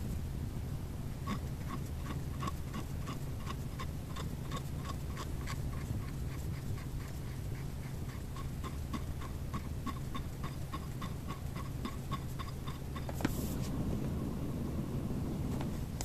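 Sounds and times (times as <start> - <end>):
steady ticking: 1.2 - 13.2
low hum: 7.3 - 16.0.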